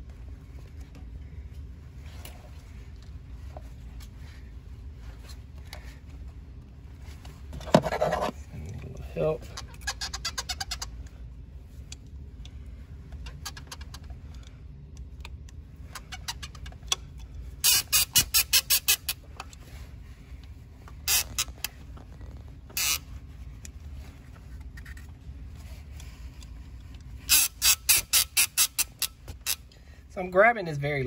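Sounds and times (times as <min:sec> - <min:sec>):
low steady hum: 0:00.0 - 0:31.0
hand tool rapid clicks: 0:27.3 - 0:29.6.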